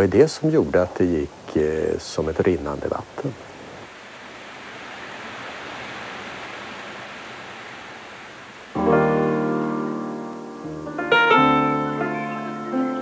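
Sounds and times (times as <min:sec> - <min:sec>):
rushing stream water: 0:00.3 - 0:11.8
piano chords: 0:08.7 - 0:13.0.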